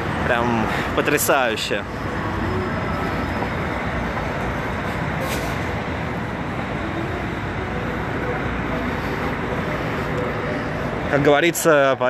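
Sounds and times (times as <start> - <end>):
city street traffic rumble: 0.0 - 12.0
brief hiss: 5.2 - 5.7.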